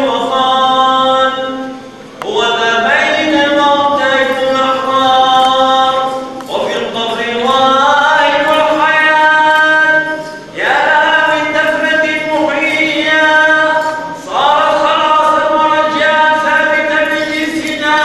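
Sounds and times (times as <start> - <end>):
unaccompanied liturgical chant: 0.0 - 18.0.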